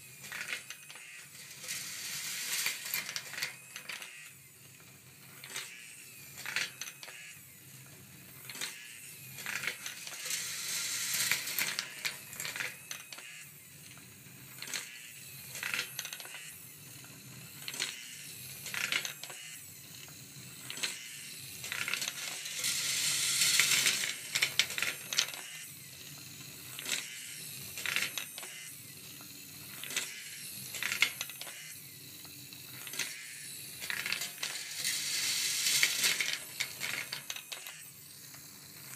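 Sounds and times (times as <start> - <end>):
balls rattling along wire track: 0.2 - 4.1, 6.4 - 7.1, 8.4 - 13.2, 18.6 - 19.4, 20.0 - 25.5, 26.2 - 28.5, 29.2 - 38.9
steel balls clicking in marble run: 0.2 - 4.1, 5.3 - 7.2, 8.4 - 13.2, 13.8 - 38.9.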